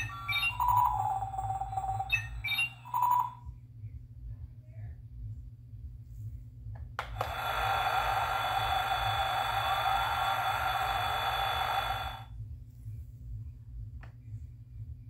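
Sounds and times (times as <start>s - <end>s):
toy car electronic sound effect: 0.0s - 3.4s, 7.3s - 12.3s.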